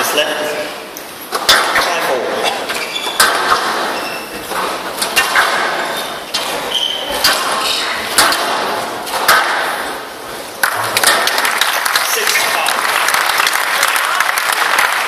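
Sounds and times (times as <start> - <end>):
squash ball cracking off rackets: 1.3 - 11.4
crowd applause: 10.6 - 15.0.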